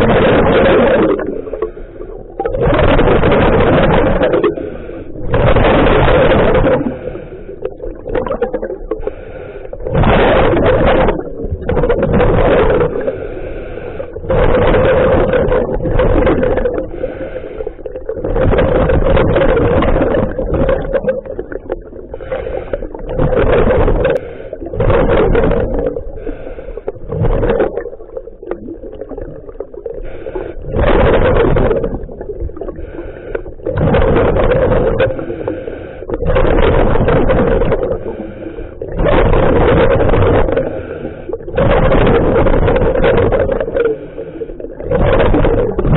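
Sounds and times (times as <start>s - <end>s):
underwater bubbles: 0.0s - 45.9s
diver breathing through regulator: 1.4s - 3.1s, 4.2s - 8.0s, 8.8s - 11.3s, 12.8s - 15.8s, 16.5s - 18.8s, 22.0s - 27.5s, 29.8s - 31.0s, 32.6s - 36.6s, 37.2s - 45.8s.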